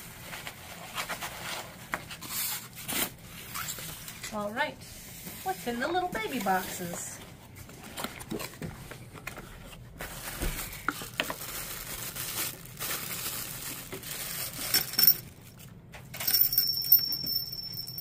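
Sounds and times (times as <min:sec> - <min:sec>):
plastic bag crinkling: 0:09.9 - 0:15.8
wind chime beads and tubes clinking: 0:16.2 - 0:18.0.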